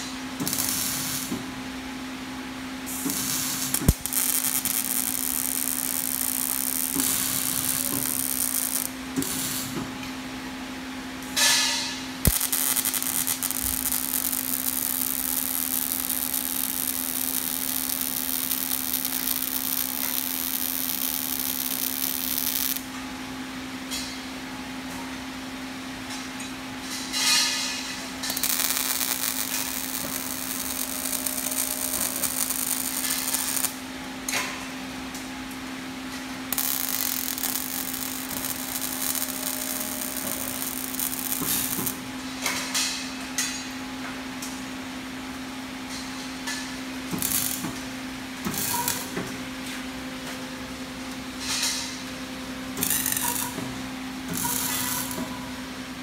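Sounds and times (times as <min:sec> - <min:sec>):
welding arc hissing and crackling: 0:00.0 - 0:01.5, 0:02.8 - 0:09.8, 0:11.4 - 0:22.9, 0:27.2 - 0:33.9, 0:36.5 - 0:42.1, 0:46.5 - 0:49.3, 0:52.8 - 0:53.6, 0:54.3 - 0:55.3.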